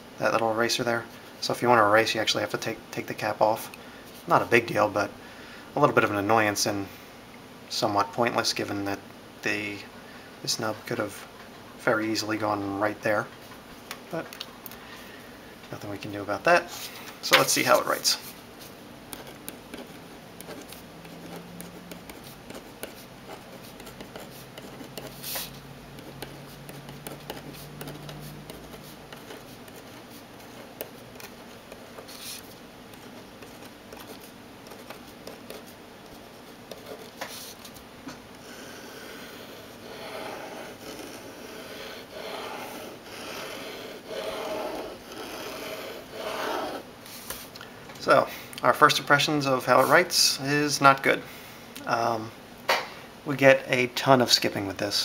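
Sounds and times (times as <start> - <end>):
pen scratching on paper: 17.4 - 37.7, 38.4 - 47.4
pen strokes back and forth: 18.2 - 35.8, 38.4 - 47.3.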